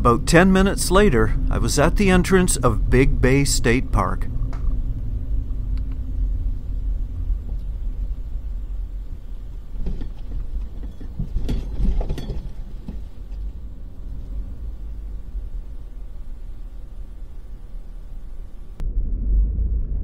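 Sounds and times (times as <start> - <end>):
car driving slowly: 0.0 - 18.8
short bumps: 4.3 - 18.8.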